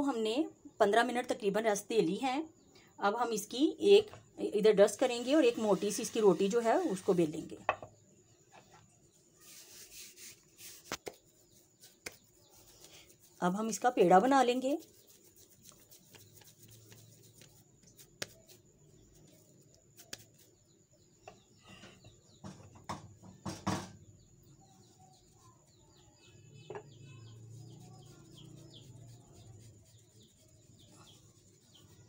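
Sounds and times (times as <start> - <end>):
dough being shaped by hand: 8.4 - 20.8, 27.0 - 32.0
rolling pin knocking on board: 22.4 - 24.0.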